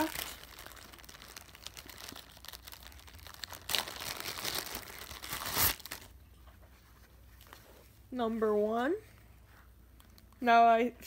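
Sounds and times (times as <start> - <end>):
plastic wrapping crinkling: 0.0 - 6.2, 9.9 - 10.5.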